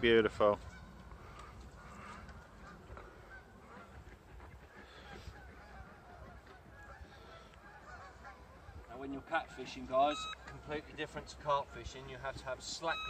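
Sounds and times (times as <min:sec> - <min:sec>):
faint geese honking: 0:00.0 - 0:13.0.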